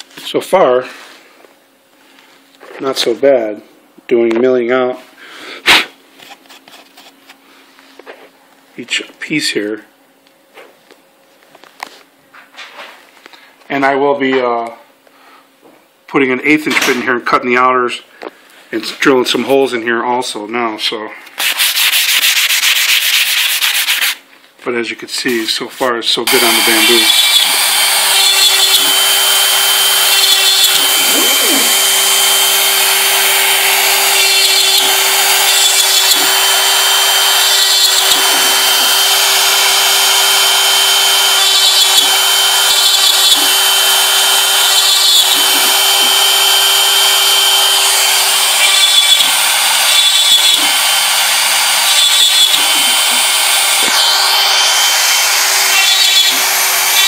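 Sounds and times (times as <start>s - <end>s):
router bit cutting board: 26.2s - 57.0s
router motor whining: 26.2s - 57.0s.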